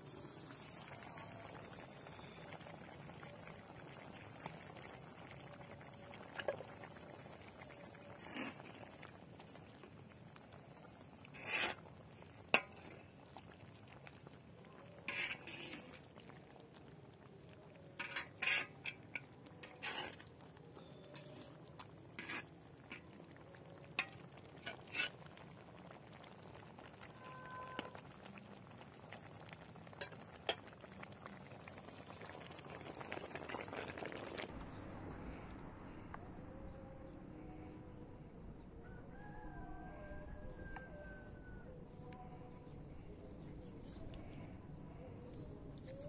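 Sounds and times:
metal ladle stirring stew: 11.0s - 14.3s, 14.9s - 16.2s, 17.8s - 28.1s, 29.6s - 31.0s.

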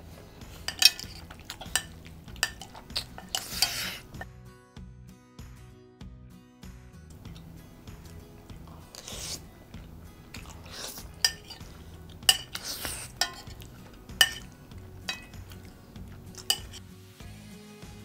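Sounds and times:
metal spoon clinking on plate: 0.7s - 4.2s, 10.4s - 16.8s.

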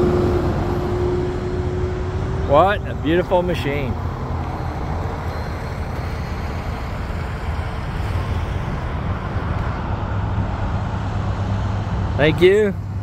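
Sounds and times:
diesel engine idling: 0.0s - 8.0s.

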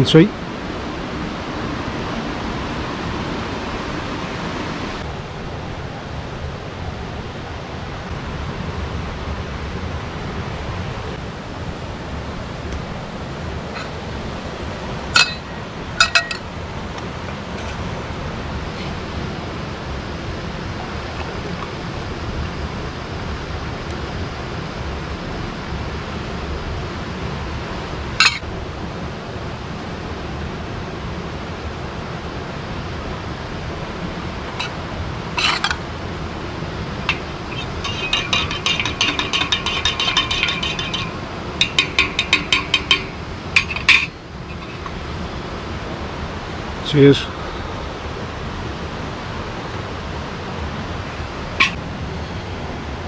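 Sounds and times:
river water rushing: 0.6s - 53.0s
teaspoon clinking in metal mug: 13.7s - 14.1s, 15.1s - 16.5s, 28.2s - 28.4s, 37.0s - 45.0s.

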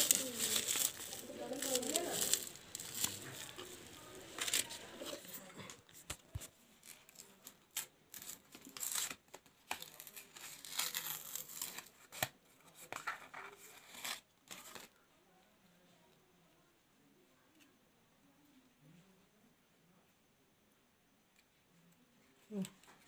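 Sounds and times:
packaging tearing and crinkling: 0.0s - 5.2s, 6.8s - 12.3s.

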